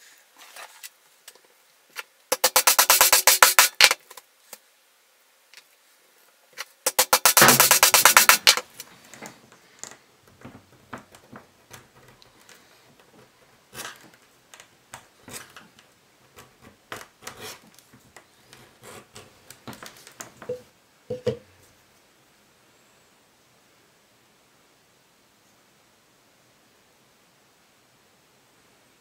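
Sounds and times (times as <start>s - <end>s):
rapid scraping strokes: 2.3s - 4.0s, 6.8s - 9.1s.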